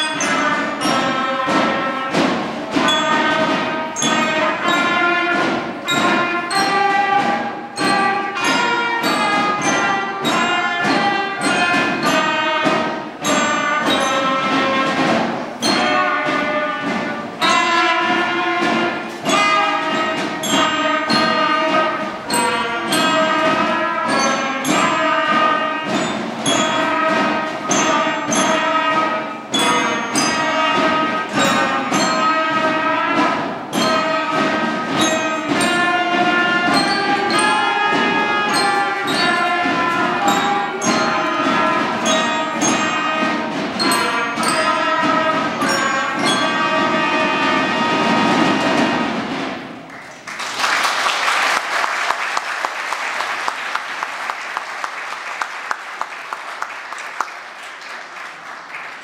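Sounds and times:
percussion beat: 0:00.0 - 0:59.0
school band playing: 0:00.0 - 0:59.0
audience applause: 0:49.9 - 0:59.0.

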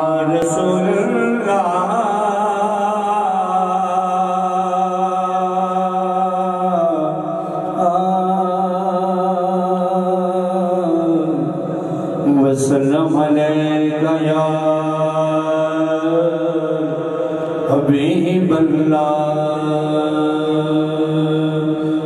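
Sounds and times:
man singing into a microphone: 0:00.0 - 0:22.0.

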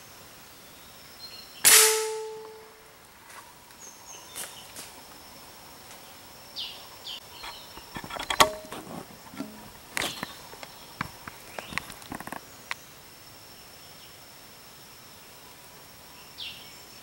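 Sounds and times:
high insect whine: 0:00.0 - 0:17.0
sharp clicks and knocks: 0:07.4 - 0:12.4.

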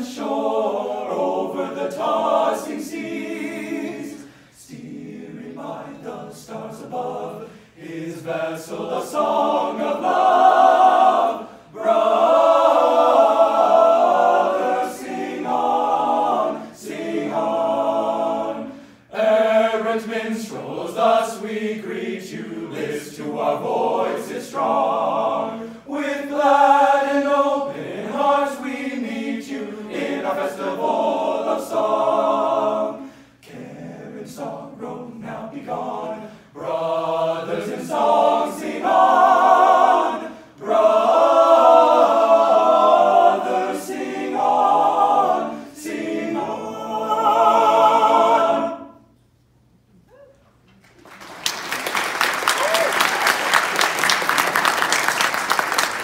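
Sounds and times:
vocal ensemble singing in harmony: 0:00.0 - 0:49.5
singers breathing: 0:04.2 - 0:04.6, 0:07.4 - 0:07.8, 0:18.7 - 0:19.1, 0:33.0 - 0:33.4, 0:36.2 - 0:36.6.

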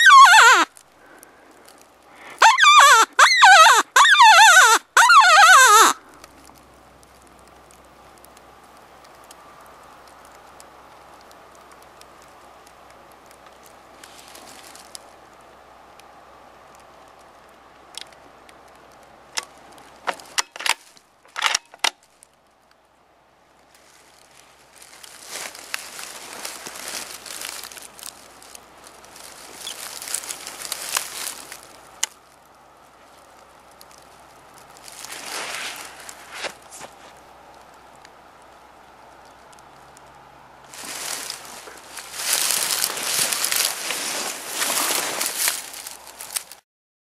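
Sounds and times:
predator call wavering cries: 0:00.0 - 0:00.7, 0:02.2 - 0:06.0
rustling: 0:00.0 - 0:15.2, 0:23.6 - 0:40.0, 0:40.7 - 0:46.6.

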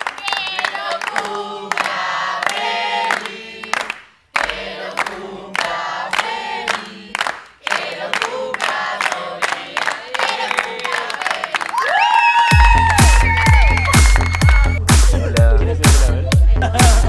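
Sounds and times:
rhythmic hand clapping: 0:00.0 - 0:17.0
group chanting a song: 0:00.4 - 0:11.7.

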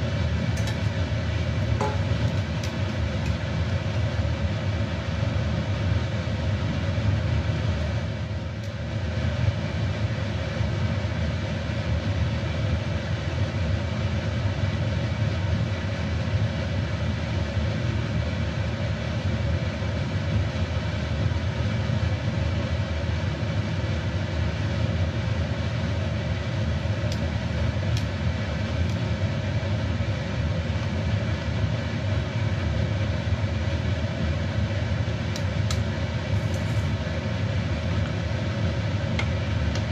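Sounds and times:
water boiling in a wok: 0:00.0 - 0:39.9.

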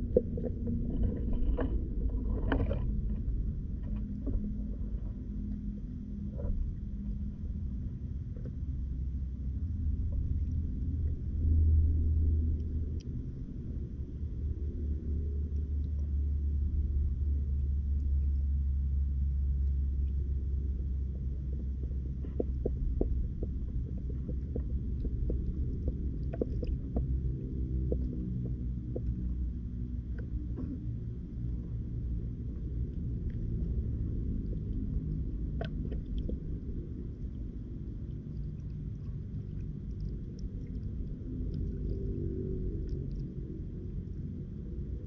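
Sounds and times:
faint clicks and knocks: 0:00.0 - 0:05.6, 0:19.5 - 0:31.8, 0:32.4 - 0:44.2
muffled underwater rumble: 0:00.0 - 0:45.0.

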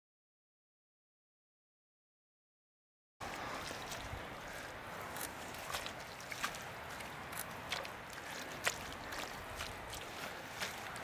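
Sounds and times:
wet clay squelching: 0:03.4 - 0:11.0.

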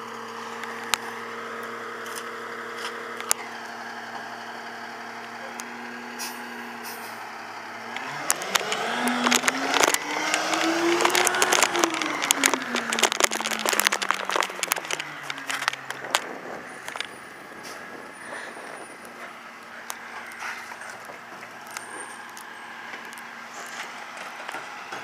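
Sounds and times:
diesel truck engine pulling away: 0:00.0 - 0:25.0
sharp clicks and rattles: 0:07.9 - 0:24.6.

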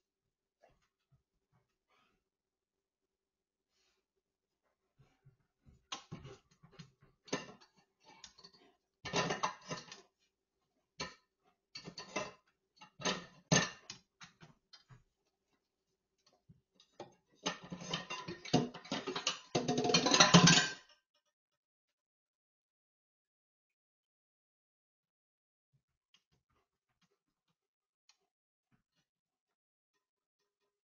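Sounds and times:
dishes clinking in metal sink: 0:17.5 - 0:20.8.

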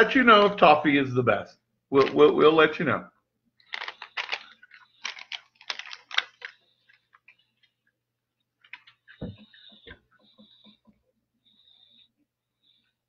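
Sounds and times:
candy crunching being chewed: 0:03.6 - 0:07.3.

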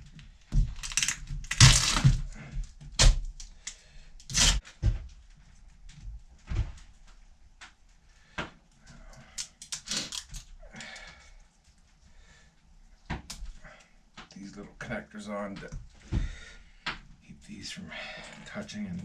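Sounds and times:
small parts clicking and knocking: 0:00.0 - 0:04.7, 0:08.8 - 0:11.9.

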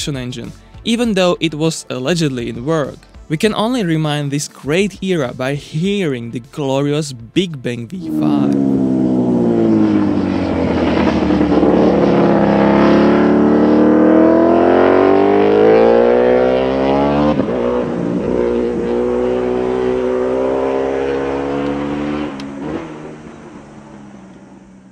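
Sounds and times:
racing motorcycle engine at full throttle: 0:07.9 - 0:24.9.

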